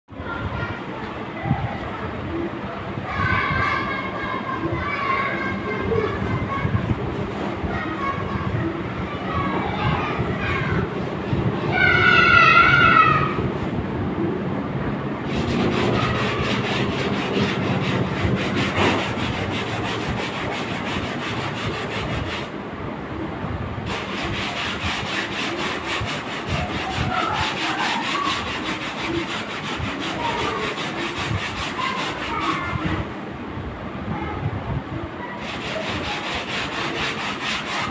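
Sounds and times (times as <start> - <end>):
scrubbing fabric upholstery: 15.2 - 22.5, 23.8 - 33.0, 35.4 - 37.9.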